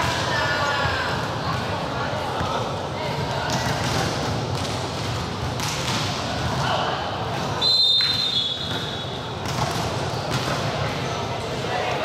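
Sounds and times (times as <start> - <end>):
echoing hubbub of sports hall: 0.0 - 12.0
referee's whistle: 7.6 - 9.1.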